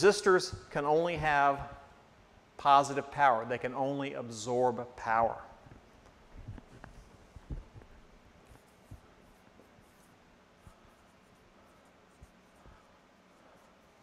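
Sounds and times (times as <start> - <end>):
marker writing on whiteboard: 6.9 - 14.0.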